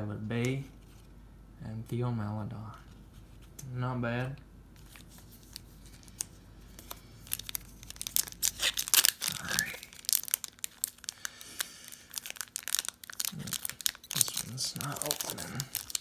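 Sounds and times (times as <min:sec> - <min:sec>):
foil pack crinkling and tearing: 0:04.8 - 0:16.0.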